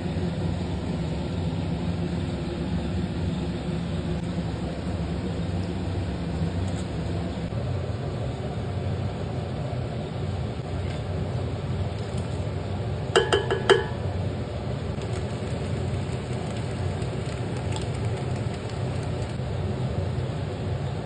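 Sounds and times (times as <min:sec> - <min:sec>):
metal cookware clinking: 0:13.2 - 0:14.0.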